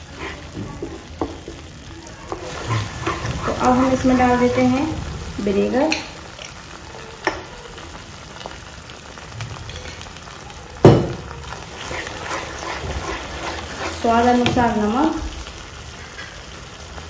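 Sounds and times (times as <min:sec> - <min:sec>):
wooden spatula stirring: 0:00.0 - 0:05.5, 0:11.4 - 0:15.5
sauce sizzling in a wok: 0:00.0 - 0:17.0.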